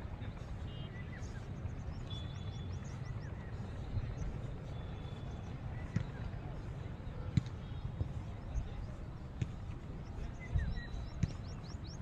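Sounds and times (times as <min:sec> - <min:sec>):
birds chirping: 0:00.0 - 0:12.0
wind on microphone: 0:09.9 - 0:12.0.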